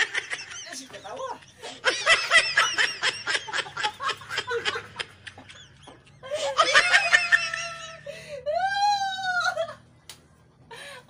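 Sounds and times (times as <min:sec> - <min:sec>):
high-pitched giggling laughter: 0:00.0 - 0:08.1.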